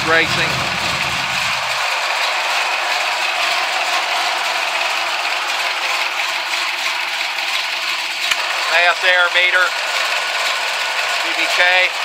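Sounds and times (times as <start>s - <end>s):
engine idling with mechanical clatter: 0.0s - 12.0s.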